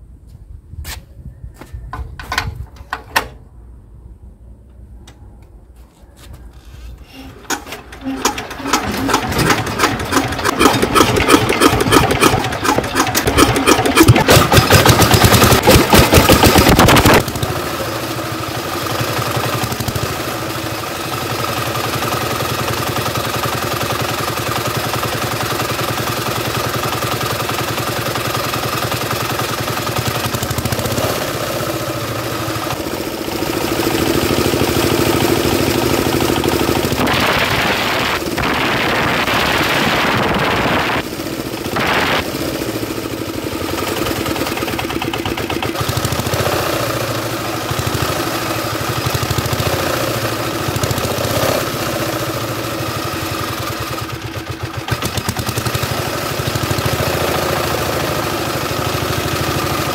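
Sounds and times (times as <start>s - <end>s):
diesel engine running: 6.6s - 59.9s
diesel engine hand crank starting: 6.9s - 17.2s.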